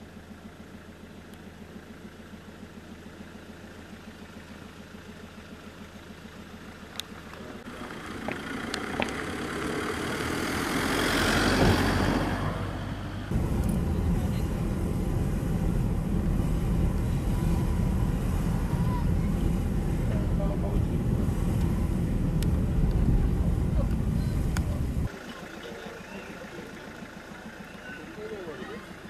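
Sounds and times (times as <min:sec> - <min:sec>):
low engine hum: 0:00.0 - 0:29.0
low engine rumble: 0:00.0 - 0:29.0
vehicle passing: 0:07.6 - 0:29.0.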